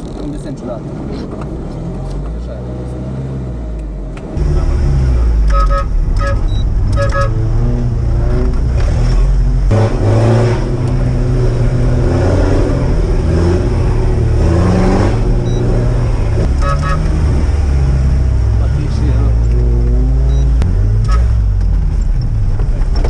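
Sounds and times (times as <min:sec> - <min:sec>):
car engine revving: 0:00.0 - 0:23.0
short beeps: 0:05.5 - 0:07.3, 0:15.4 - 0:15.7, 0:16.6 - 0:17.0, 0:20.3 - 0:21.3.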